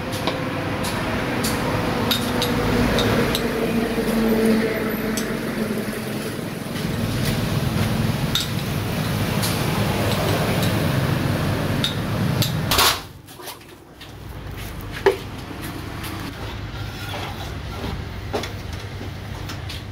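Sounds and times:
cups and utensils clinking: 0:02.1 - 0:03.5.

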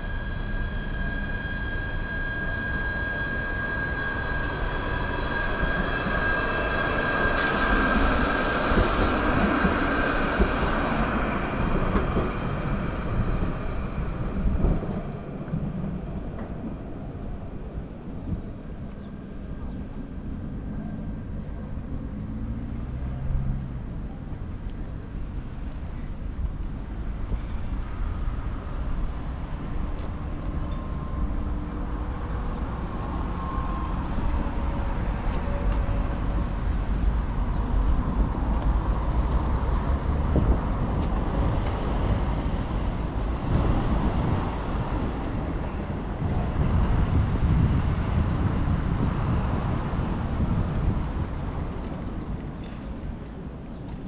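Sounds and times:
vehicle rumble: 0:19.6 - 0:54.0.

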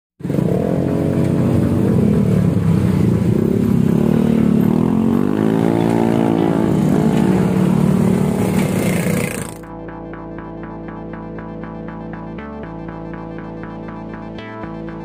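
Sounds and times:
scooter engine revving: 0:00.2 - 0:09.7.

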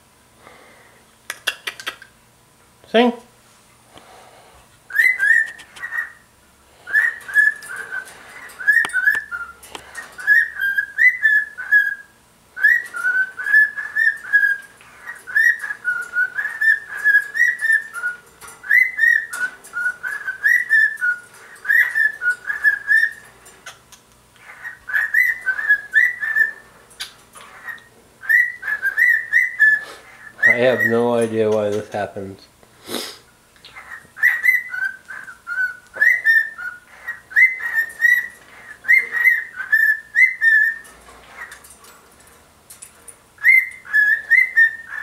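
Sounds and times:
cockatiel whistling: 0:04.9 - 0:06.2, 0:06.9 - 0:09.6, 0:10.2 - 0:23.2, 0:24.4 - 0:31.0, 0:33.6 - 0:40.8, 0:43.4 - 0:45.0.

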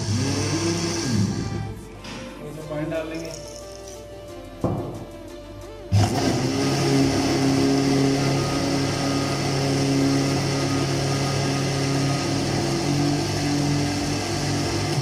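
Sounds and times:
blender motor humming: 0:00.0 - 0:01.8, 0:05.9 - 0:15.0.

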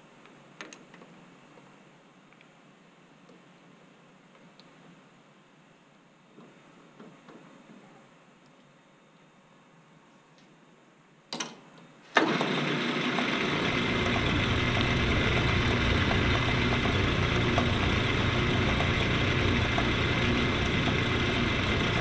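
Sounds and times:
metal lathe running: 0:12.2 - 0:22.0.

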